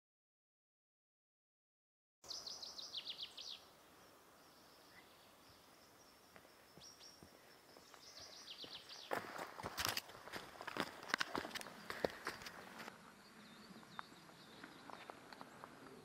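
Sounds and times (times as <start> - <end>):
songbird singing: 2.2 - 16.0
faint steady hiss: 2.3 - 8.4.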